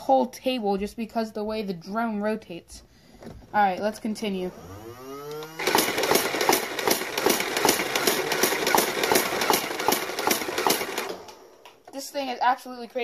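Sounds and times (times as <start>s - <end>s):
toy blaster firing rapid clatter: 5.6s - 11.5s.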